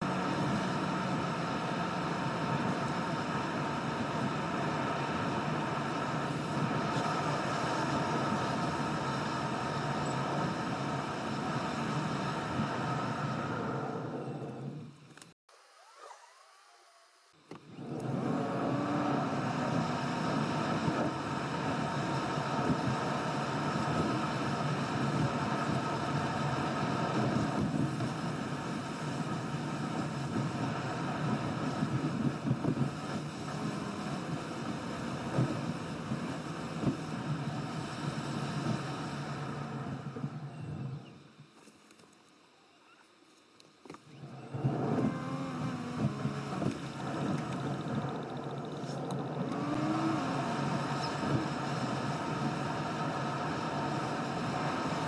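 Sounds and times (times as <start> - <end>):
car tyre and engine noise: 0.0 - 42.1, 43.6 - 55.0
car engine running: 44.4 - 55.0.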